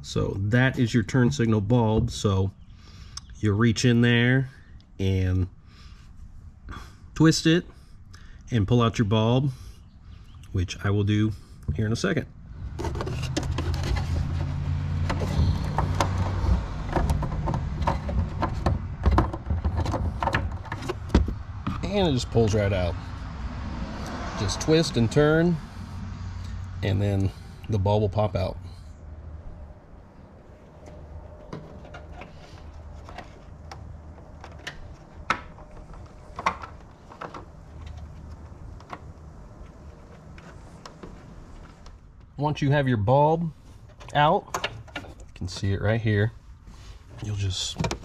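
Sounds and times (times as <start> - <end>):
clicks and scrapes of plastic trim: 12.8 - 21.8
plastic clicks and knocks: 15.0 - 21.8, 33.0 - 39.3.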